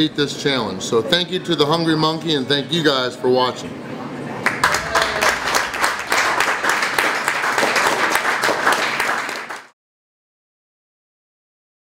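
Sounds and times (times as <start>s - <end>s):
people applauding: 4.4s - 9.8s.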